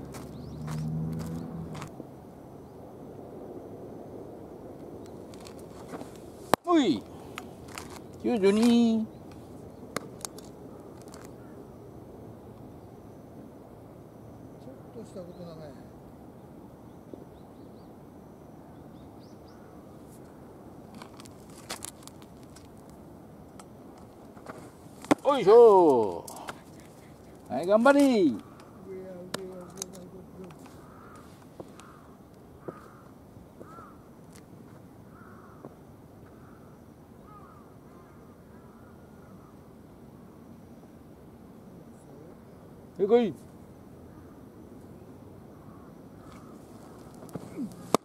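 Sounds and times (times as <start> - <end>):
faint bird chirps: 0.2 - 1.6, 14.3 - 20.6
distant crows cawing: 10.0 - 11.9, 19.4 - 20.6, 25.3 - 34.2, 35.0 - 39.7, 43.9 - 44.8, 45.4 - 48.0.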